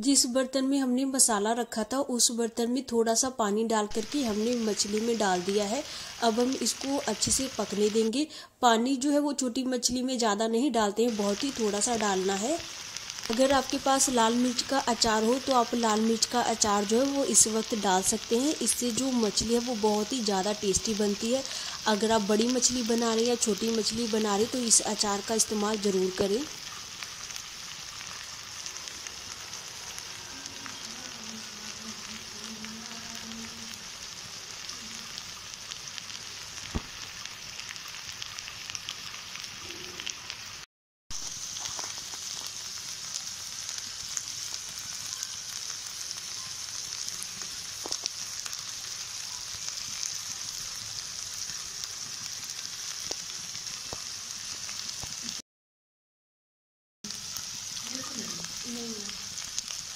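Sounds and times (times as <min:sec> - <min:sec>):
curry sizzling in a pan: 0:03.1 - 0:55.4, 0:57.0 - 0:59.9
small pops: 0:36.7 - 0:37.1.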